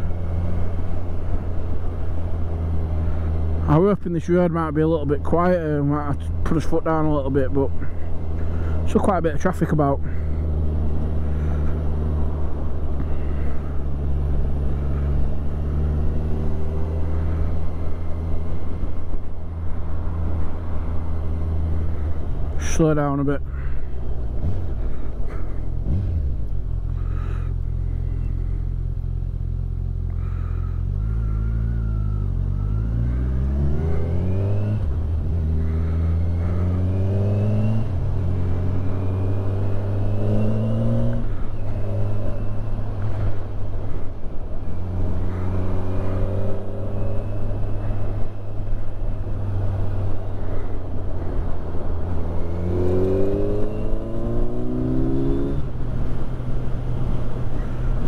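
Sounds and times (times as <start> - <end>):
motorcycle engine revving and shifting: 10.0 - 22.6, 23.5 - 28.6, 29.7 - 58.0.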